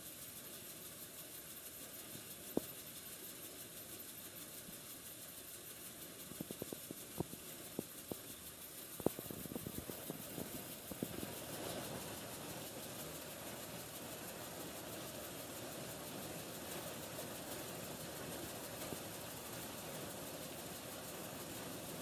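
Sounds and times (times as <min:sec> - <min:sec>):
threshing machine humming: 0:06.6 - 0:22.0.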